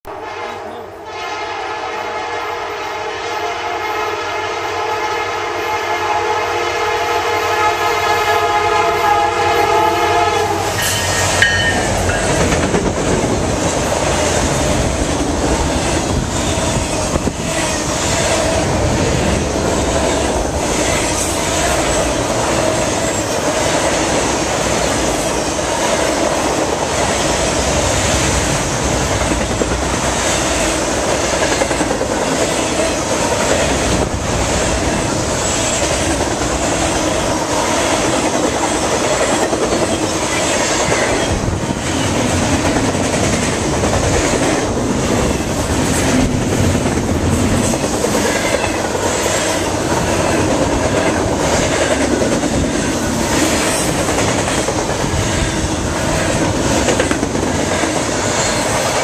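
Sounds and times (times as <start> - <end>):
steel wheels roaring on rail: 0.0 - 59.0
train horn: 0.1 - 12.1
clickety-clack over rail joints: 10.8 - 59.0.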